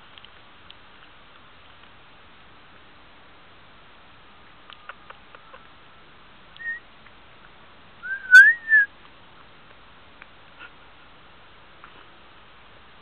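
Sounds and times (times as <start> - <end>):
high chirp: 6.6 - 6.8, 8.0 - 8.9
sliding whistle: 6.6 - 6.8, 8.0 - 8.9.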